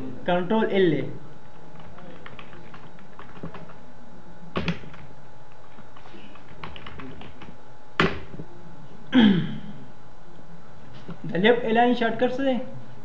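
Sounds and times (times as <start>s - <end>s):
computer keyboard typing: 1.6s - 3.8s, 4.6s - 8.2s.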